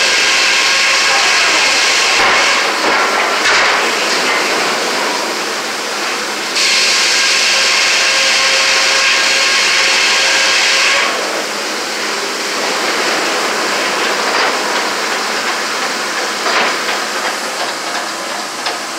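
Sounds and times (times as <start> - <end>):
saw cutting through log: 0.0 - 4.5
mill machinery hiss and rattle: 0.0 - 18.9.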